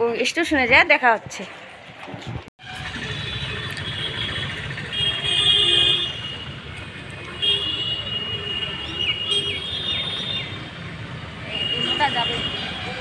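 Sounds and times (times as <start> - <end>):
low traffic rumble: 0.0 - 13.0
vehicle horns: 2.6 - 10.8, 11.4 - 13.0.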